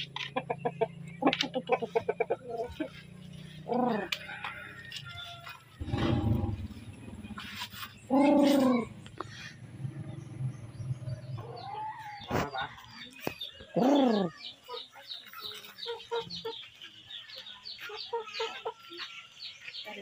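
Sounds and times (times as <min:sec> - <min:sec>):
chickens calling: 0:00.0 - 0:20.0
soft clucks: 0:00.1 - 0:03.0.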